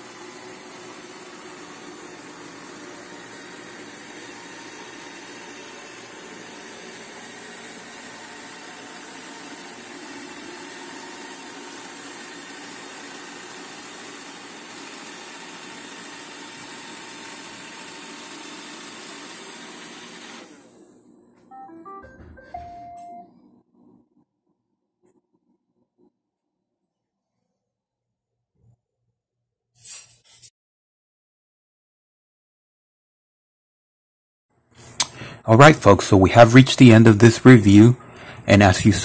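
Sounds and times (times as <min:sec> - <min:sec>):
robot vacuum whirring: 0:00.0 - 0:20.6.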